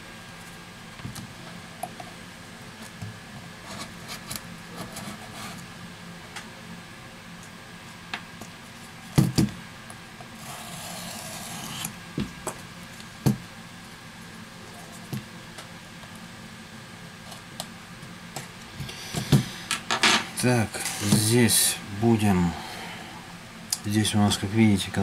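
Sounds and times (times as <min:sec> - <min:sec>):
scraping rub on mat: 0:03.6 - 0:05.6.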